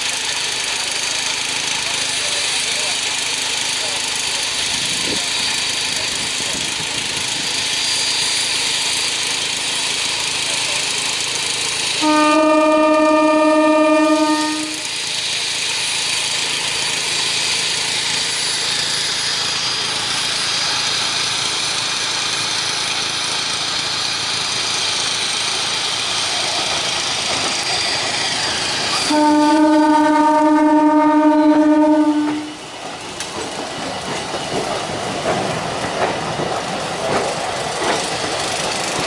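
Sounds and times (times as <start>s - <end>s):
train running along rails: 0.0s - 39.0s
train horn blast: 12.0s - 14.9s, 29.0s - 32.6s.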